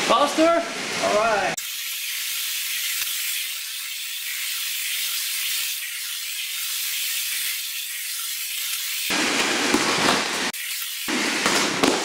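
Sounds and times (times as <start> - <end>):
toy trains rattling on track: 1.6 - 9.1.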